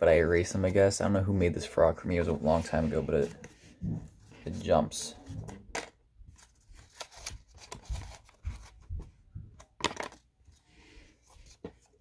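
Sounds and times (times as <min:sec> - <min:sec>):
crinkly paper rustle: 0:06.3 - 0:09.1.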